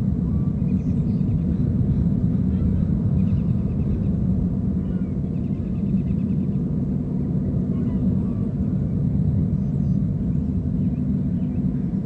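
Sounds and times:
boat engines rumbling: 0.0s - 12.0s
small birds chirping: 0.4s - 4.2s.

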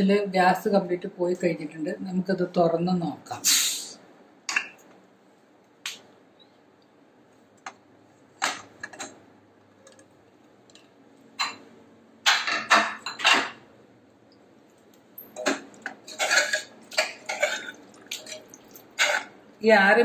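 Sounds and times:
spoon scraping metal pot: 15.3s - 19.4s.

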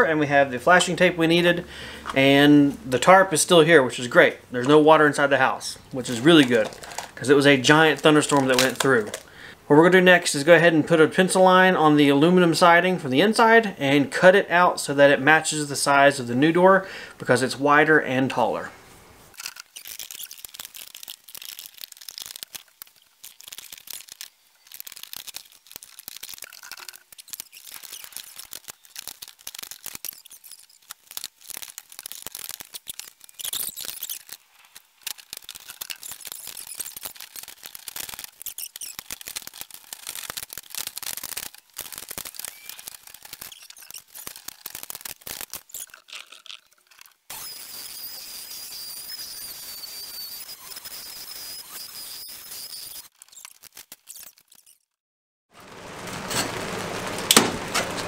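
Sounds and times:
metal siding being cut by hand: 55.6s - 58.0s.

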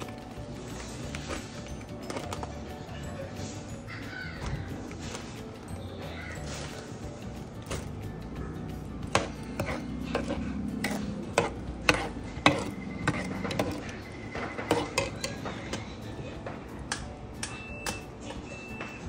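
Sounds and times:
spoon clinking and scraping pan: 9.0s - 16.0s.

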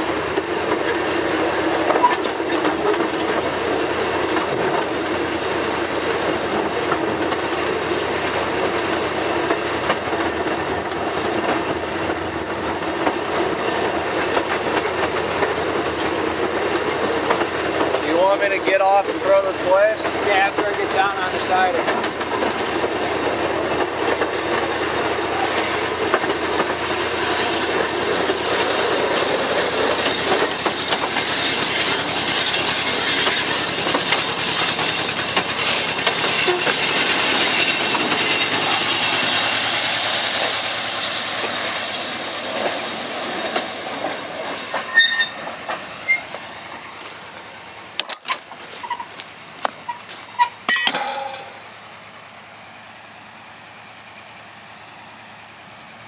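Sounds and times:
train wheels clattering over rails: 0.0s - 56.0s.

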